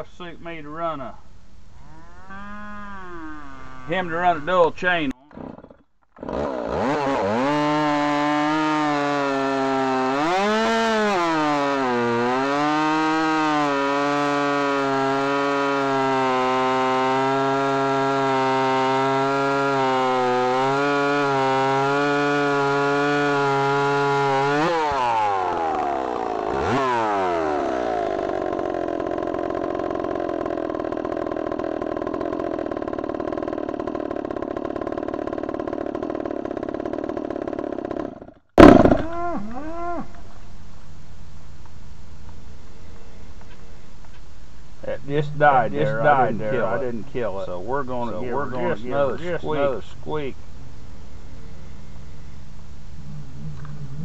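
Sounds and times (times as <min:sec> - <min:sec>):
chainsaw running at high speed: 0:06.2 - 0:39.2.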